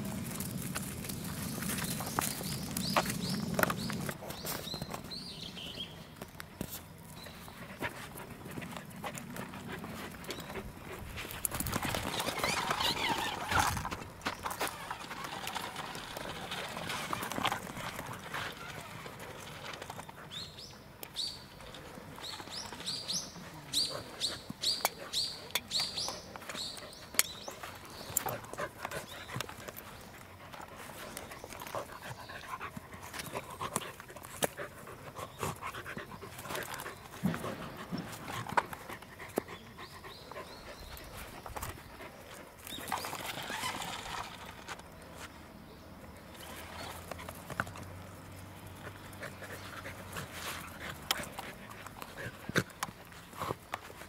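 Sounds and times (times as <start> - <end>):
short high rising squeaks: 11.8 - 14.0, 42.9 - 44.6
dog panting and whimpering: 28.2 - 42.7, 48.7 - 53.7.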